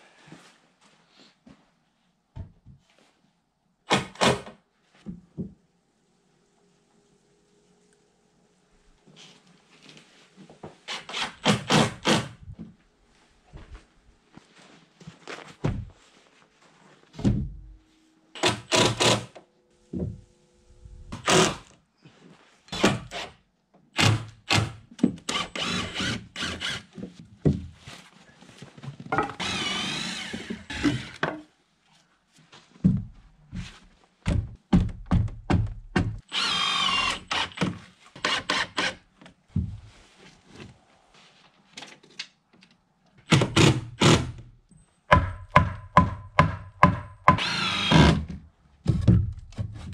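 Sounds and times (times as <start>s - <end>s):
cordless drill driving screws: 18.4s - 19.3s, 24.0s - 26.9s, 29.4s - 31.2s, 36.3s - 39.0s, 47.4s - 48.2s.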